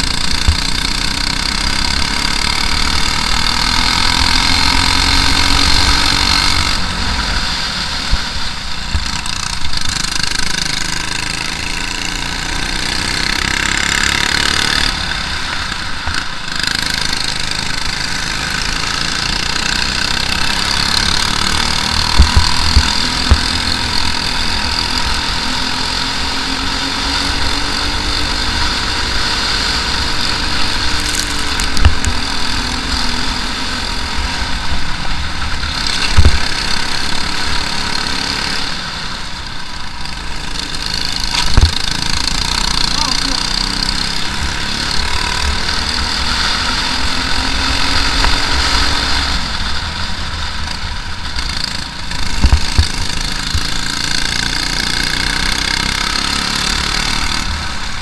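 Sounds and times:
kart engine revving: 0.0 - 58.0
sharp thumps: 21.4 - 24.2.

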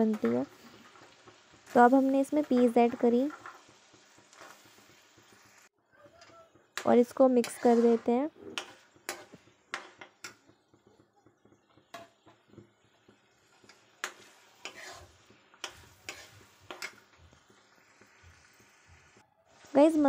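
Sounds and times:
metal spoon scraping pan: 0.0 - 5.4, 6.2 - 10.5, 13.6 - 17.2
light sizzle: 0.0 - 20.0.

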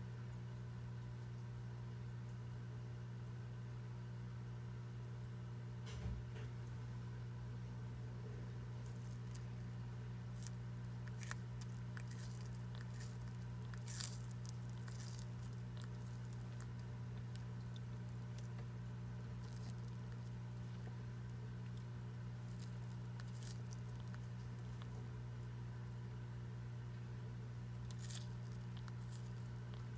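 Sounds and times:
steady low hum: 0.0 - 29.9
tortoise crunching leaves: 8.7 - 25.5, 27.7 - 29.9.

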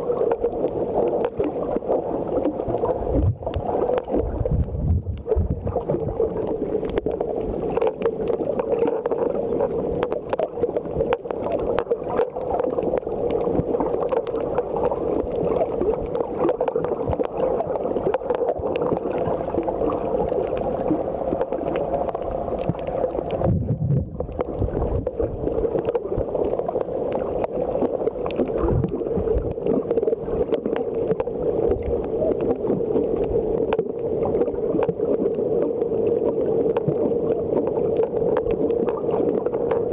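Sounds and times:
crackle of small clicks: 0.0 - 39.9
muffled underwater drone: 0.0 - 39.9
low rumble: 4.2 - 5.8, 23.4 - 25.1.

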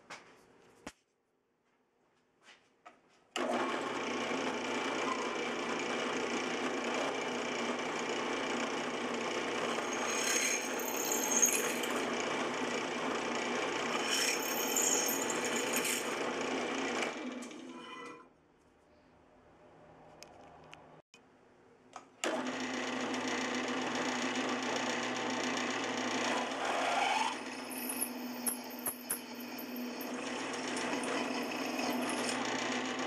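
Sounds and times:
drill press motor running: 3.4 - 17.7, 22.2 - 33.0
drill bit cutting metal: 9.3 - 12.6, 13.4 - 16.6, 26.0 - 33.0.

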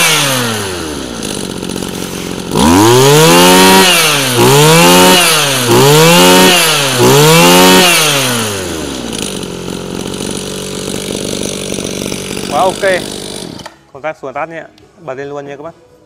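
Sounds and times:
brush-cutter engine revving: 0.0 - 13.8.

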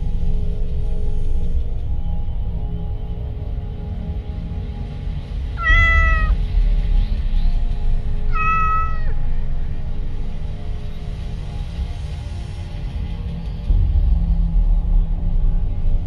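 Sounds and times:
background music: 0.0 - 16.0
cat meowing: 5.6 - 6.4, 8.3 - 9.2.

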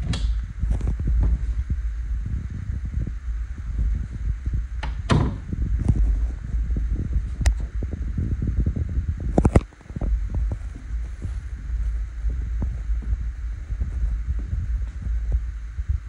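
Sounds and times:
soft footfalls: 0.4 - 4.7, 9.8 - 16.0
phone handling rumble: 9.2 - 15.4.

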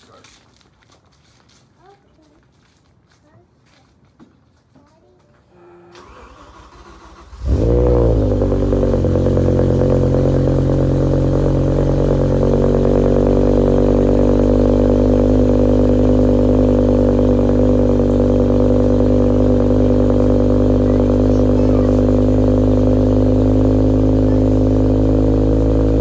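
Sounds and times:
car engine starting and idling: 5.5 - 26.0.

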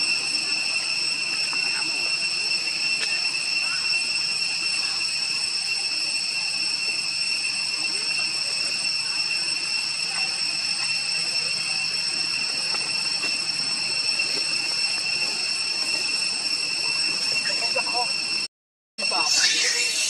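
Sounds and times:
insect chorus drone: 0.0 - 18.4, 19.0 - 20.0.

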